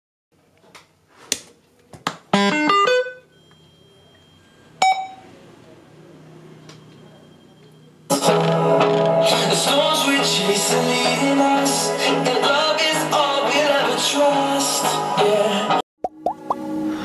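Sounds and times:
electronic beep: 0:02.4 - 0:05.3, 0:06.7 - 0:08.1
music from speaker: 0:08.1 - 0:17.0.

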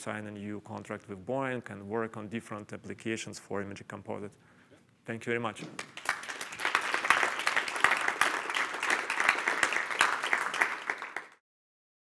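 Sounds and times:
audience applauding: 0:05.8 - 0:11.4.

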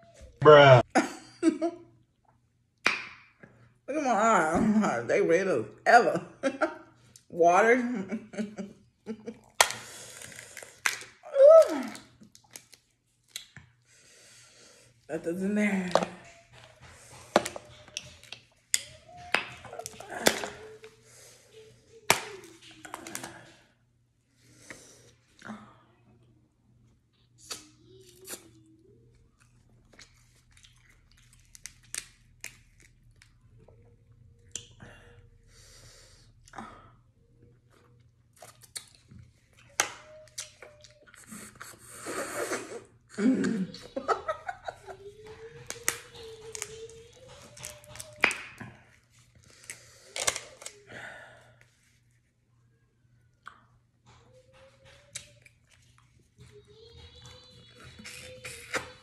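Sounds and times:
chewing: 0:27.4 - 0:34.8, 0:37.4 - 0:42.8, 0:45.4 - 0:50.8.

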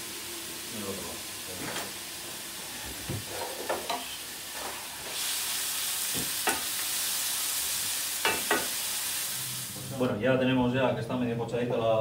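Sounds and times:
onion sizzling in oil: 0:00.0 - 0:10.2.

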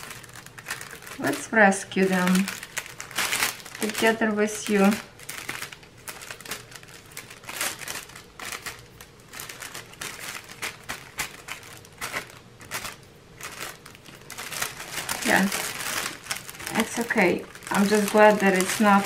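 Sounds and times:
plastic packaging crinkling: 0:00.0 - 0:19.0.

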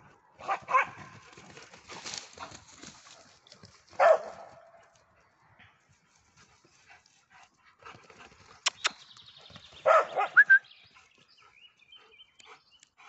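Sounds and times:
sharp clicks: 0:08.7 - 0:09.0.

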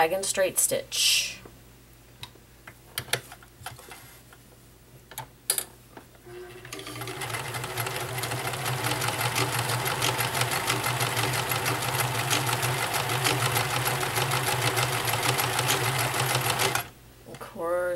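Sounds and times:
sewing machine stitching: 0:06.3 - 0:16.9.

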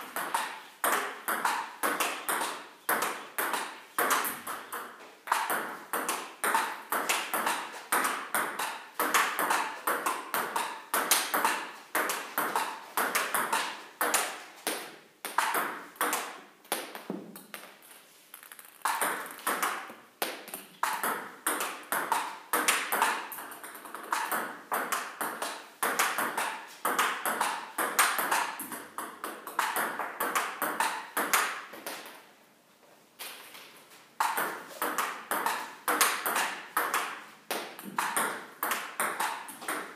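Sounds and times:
table tennis ball clicks: 0:18.3 - 0:23.1.

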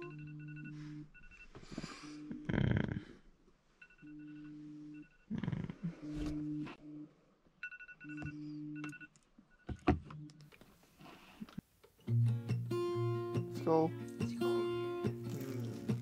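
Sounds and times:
electronic alarm tones: 0:00.0 - 0:02.2, 0:06.0 - 0:10.3.

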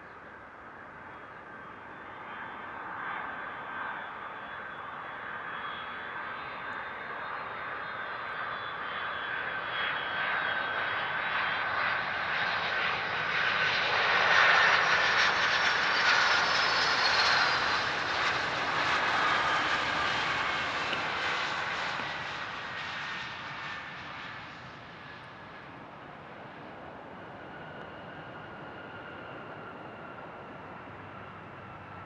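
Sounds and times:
rushing noise of airliner: 0:00.4 - 0:32.0
jet engines whining: 0:04.8 - 0:32.0.

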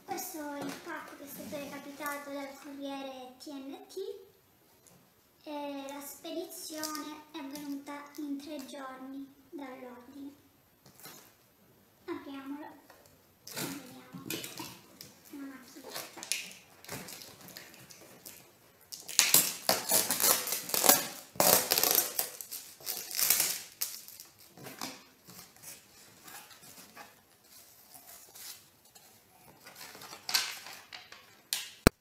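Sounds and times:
packing material crinkling: 0:13.5 - 0:31.9.

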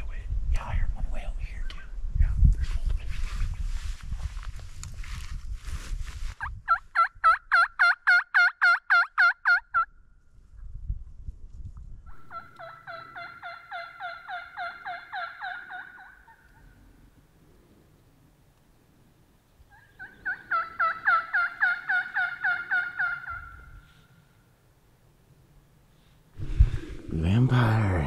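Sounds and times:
turkey call yelps: 0:06.7 - 0:09.9, 0:12.1 - 0:16.7, 0:19.7 - 0:24.0.

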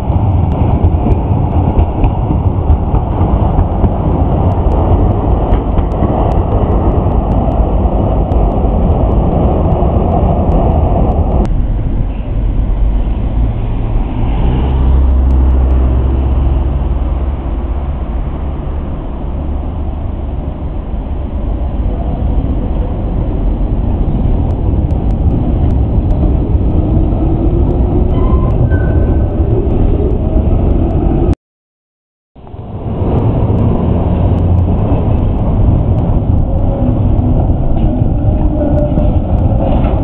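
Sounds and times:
tram wheels rumbling on rails: 0:00.0 - 0:31.4, 0:32.4 - 0:40.0
rising whine: 0:03.8 - 0:22.2.

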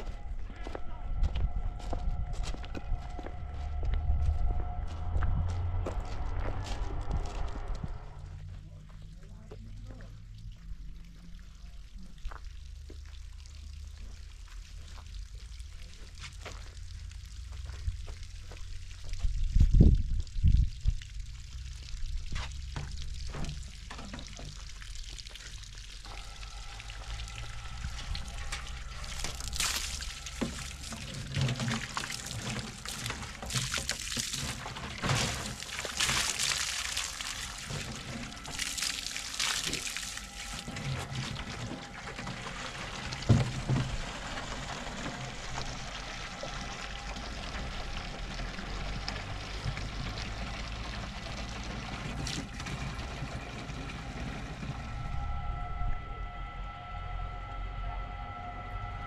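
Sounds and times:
footsteps on stony ground: 0:00.0 - 0:10.1, 0:16.0 - 0:16.8, 0:22.3 - 0:24.2
hose water pouring into jerrycan: 0:11.1 - 0:54.7.

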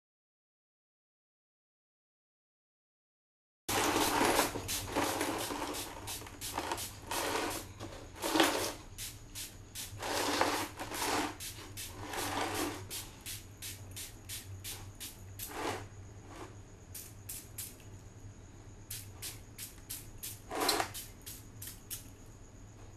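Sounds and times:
spray bottle hissing mist: 0:03.7 - 0:07.7, 0:08.7 - 0:15.9, 0:16.9 - 0:17.8, 0:18.9 - 0:22.0.

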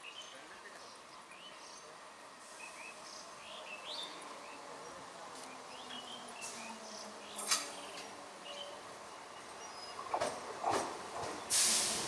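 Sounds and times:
birds chirping: 0:00.0 - 0:10.7
faint outdoor background: 0:00.0 - 0:12.0.

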